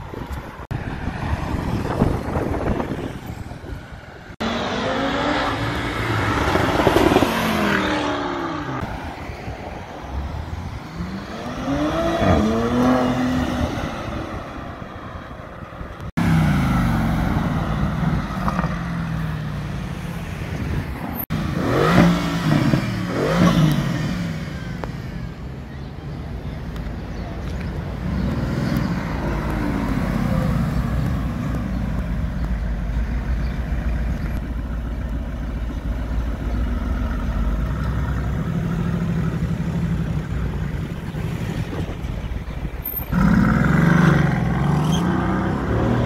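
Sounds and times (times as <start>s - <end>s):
sports car engines accelerating: 4.3s - 9.4s, 10.0s - 15.2s, 16.0s - 46.0s
engine revving: 4.4s - 8.9s, 10.9s - 14.0s, 21.3s - 24.9s, 43.0s - 46.0s.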